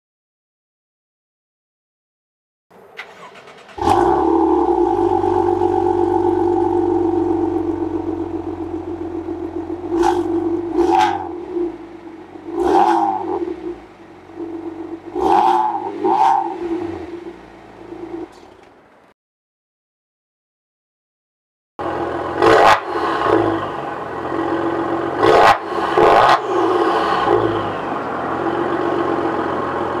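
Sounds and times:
engine revving: 2.7s - 18.4s, 21.8s - 30.0s
car engine idling: 2.7s - 19.1s, 21.8s - 22.5s, 23.2s - 30.0s.

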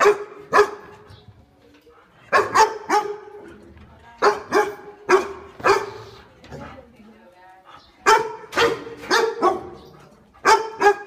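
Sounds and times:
dog barking: 0.0s - 0.9s, 2.3s - 3.4s, 4.2s - 6.2s, 8.0s - 11.0s.

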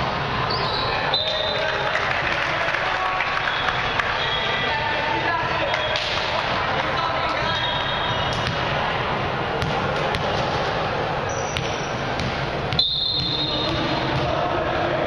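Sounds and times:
crowd chatter: 0.0s - 15.0s
sneaker squeaks: 0.5s - 1.6s, 7.3s - 8.7s, 11.2s - 14.3s.

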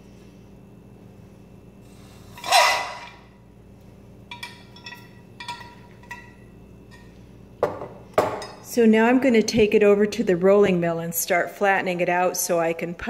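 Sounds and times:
metal tongs clinking on glass: 4.3s - 7.1s.

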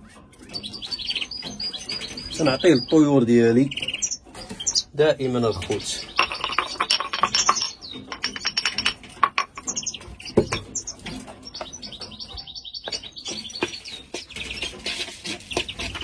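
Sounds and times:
songbirds chirping and trilling: 0.0s - 16.0s
container and bowl knocks: 6.1s - 9.7s.

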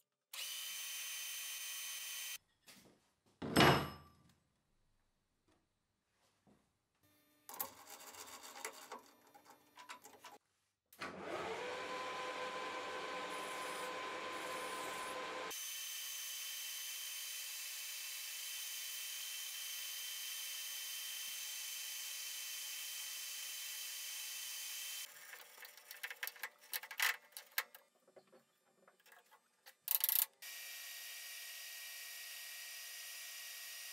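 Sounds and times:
lathe motor whine: 11.1s - 15.5s
metal parts clattering: 25.3s - 28.2s.

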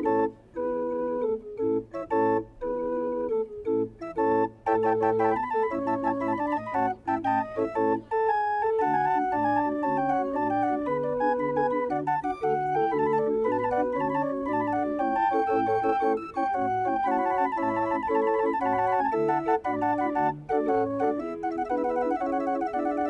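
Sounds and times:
organ-like keyboard music: 0.0s - 23.0s.

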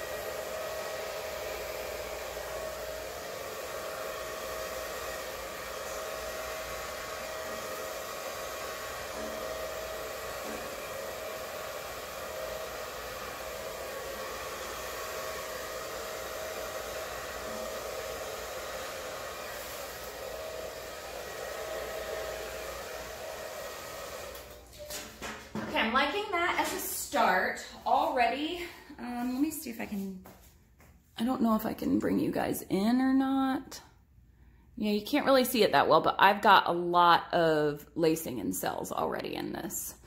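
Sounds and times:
blow dryer running: 0.0s - 29.4s.

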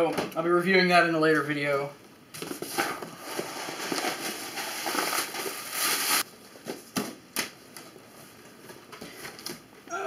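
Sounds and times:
cardboard box rustling and crinkling: 2.5s - 6.2s.

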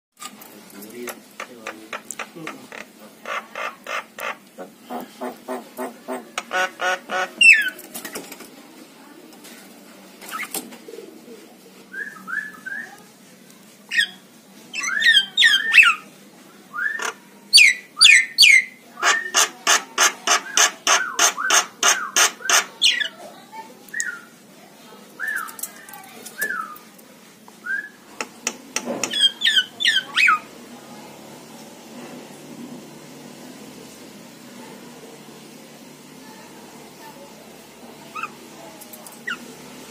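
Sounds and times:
mynas calling: 2.1s - 7.8s, 13.9s - 16.0s, 16.8s - 23.2s, 29.0s - 30.5s, 38.0s - 38.5s, 39.1s - 39.6s.

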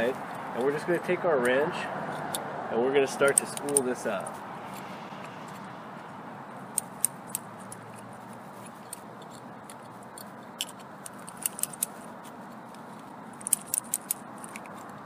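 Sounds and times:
sharp metallic clicks: 3.2s - 5.7s, 6.7s - 12.1s, 12.7s - 15.0s.

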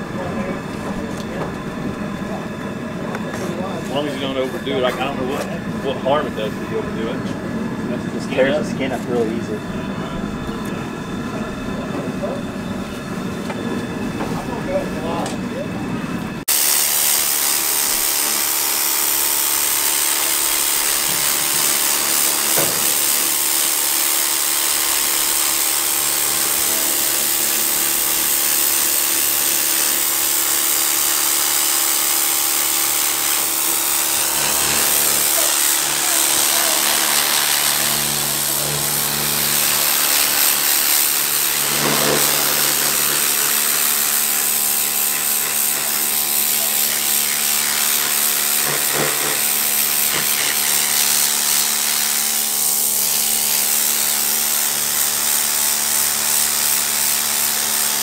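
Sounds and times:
pressure washer motor hum: 0.0s - 58.0s
water jet hissing: 16.5s - 58.0s.

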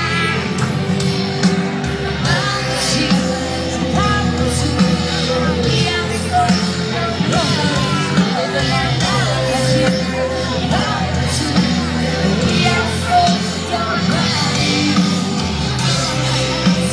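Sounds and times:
live rock band playing: 0.0s - 16.9s
woman singing: 2.2s - 15.2s.

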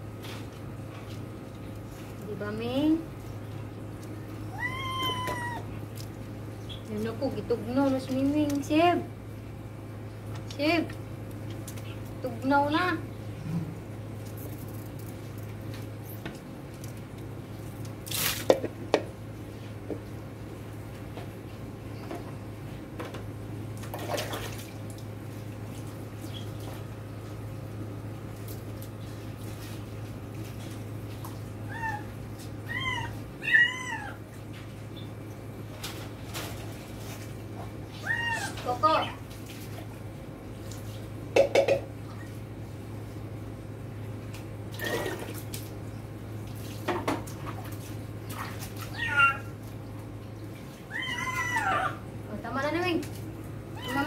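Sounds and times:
steady low hum: 0.0s - 54.0s
water sloshing and splashing: 0.1s - 8.9s, 14.1s - 22.3s, 23.0s - 42.8s, 44.2s - 54.0s
kitten meowing: 4.5s - 5.7s, 32.7s - 34.2s, 38.0s - 38.6s, 48.9s - 49.5s, 50.9s - 52.0s
water splashing and dripping: 23.8s - 26.9s, 46.4s - 51.7s.

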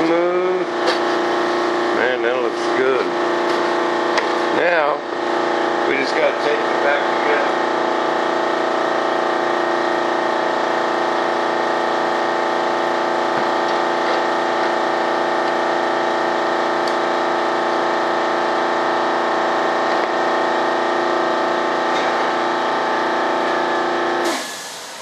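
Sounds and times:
air compressor running: 0.0s - 25.0s.

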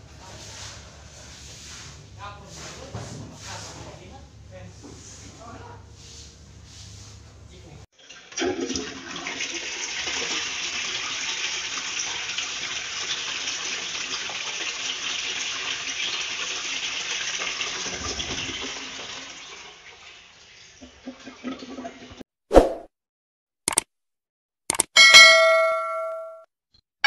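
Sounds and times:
toilet flushing: 7.9s - 22.2s.

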